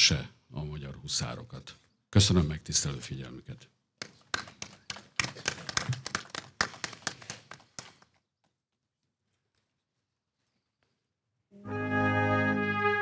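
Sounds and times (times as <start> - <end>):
small audience clapping: 4.0 - 8.1.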